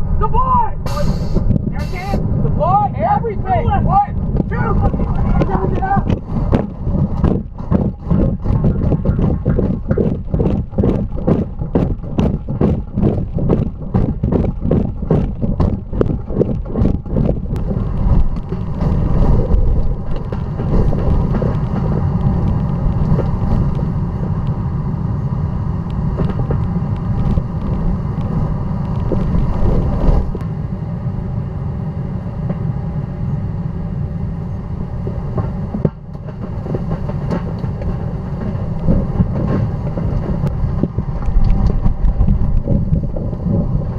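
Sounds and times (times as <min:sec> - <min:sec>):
tornado wind roaring: 0:00.0 - 0:43.9
rapid knocks: 0:04.3 - 0:23.2.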